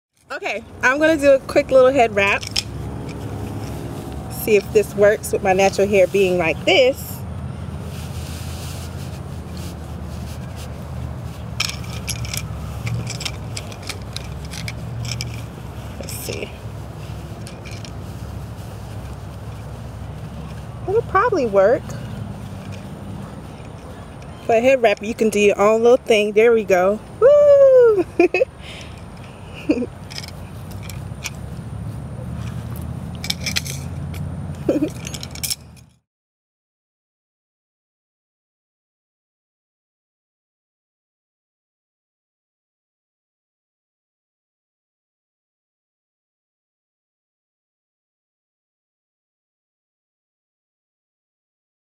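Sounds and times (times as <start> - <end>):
steady low rumble: 0.3 - 36.0
metal bangles jangling: 0.8 - 7.2, 8.9 - 27.0, 28.2 - 36.0
cloth rustling and rubbing: 0.9 - 7.1, 7.7 - 26.9.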